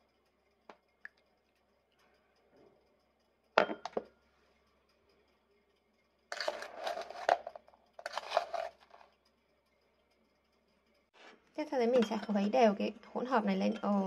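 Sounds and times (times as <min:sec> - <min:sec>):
spoon scooping sugar: 0:06.3 - 0:09.2.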